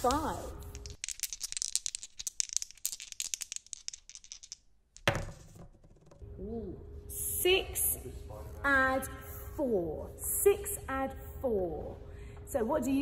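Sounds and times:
dice rattling: 0.1s - 6.2s
dice knocking to rest: 0.7s - 6.2s.

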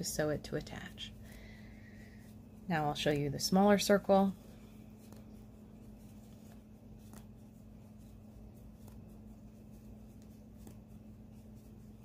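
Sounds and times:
crochet hook and yarn rustling: 0.0s - 12.0s
low steady hum: 0.0s - 12.0s.

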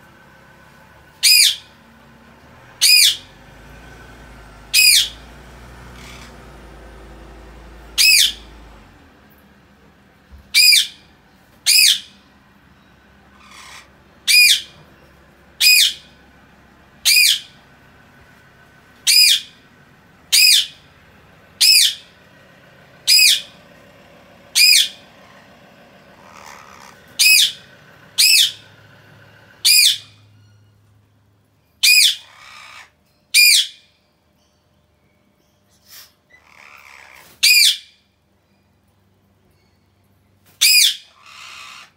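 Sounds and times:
parakeets squawking: 1.1s - 9.2s, 10.4s - 12.2s, 13.2s - 18.0s, 18.8s - 30.5s, 31.8s - 33.8s, 35.9s - 38.0s, 40.6s - 41.9s
parakeet soft chirps: 1.2s - 1.7s, 2.8s - 3.4s, 4.7s - 7.0s, 7.9s - 8.6s, 10.5s - 11.0s, 23.1s - 23.5s, 24.6s - 25.5s, 26.2s - 28.8s, 29.6s - 30.8s, 35.7s - 37.8s.

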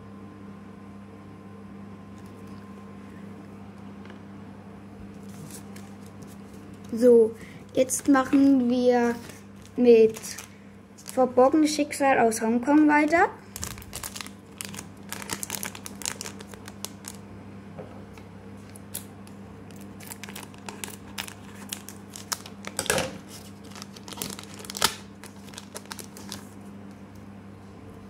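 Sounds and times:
foil wrapper crinkling and tearing: 9.2s - 11.3s, 13.5s - 17.2s, 19.2s - 26.6s.

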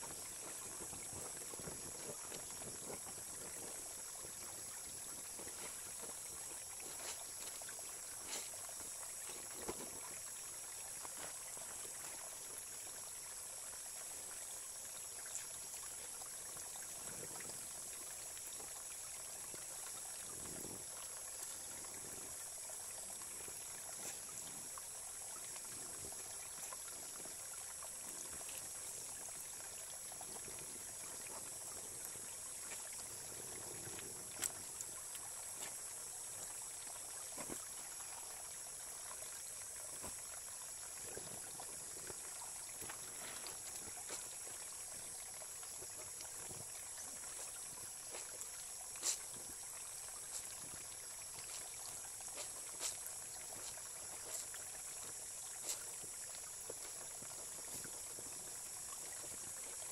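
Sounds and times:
stream trickling over pebbles: 0.0s - 59.9s
laundry splashing and dripping: 41.2s - 58.3s.

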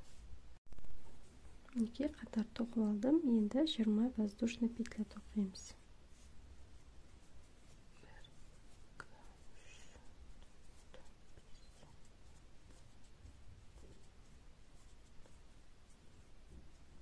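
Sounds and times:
crochet hook scratching yarn: 1.0s - 17.0s.

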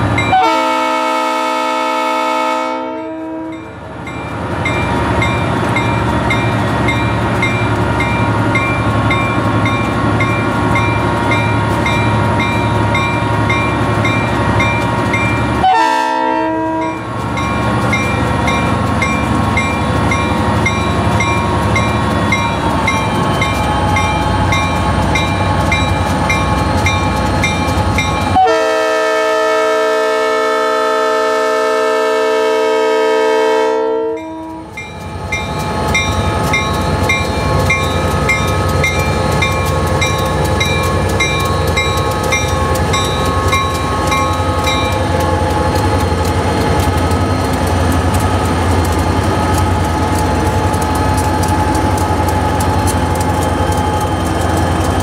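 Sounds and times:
diesel locomotive droning: 0.0s - 55.0s
locomotive air horn blasts: 0.3s - 3.6s, 15.6s - 17.0s, 28.4s - 34.6s
locomotive bell ticking: 3.4s - 15.7s, 16.7s - 28.5s, 34.0s - 55.0s.

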